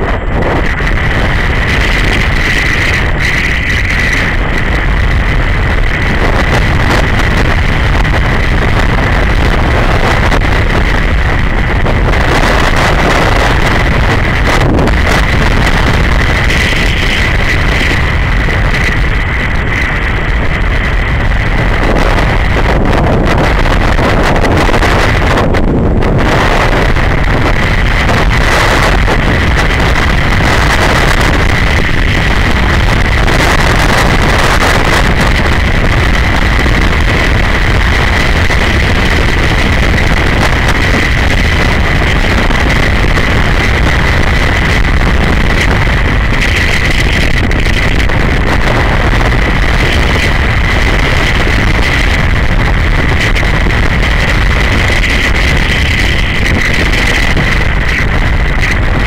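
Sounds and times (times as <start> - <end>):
motorcycle engine cruising: 0.0 - 59.0
steady high whine: 0.0 - 59.0
wind rush on microphone: 0.0 - 59.0.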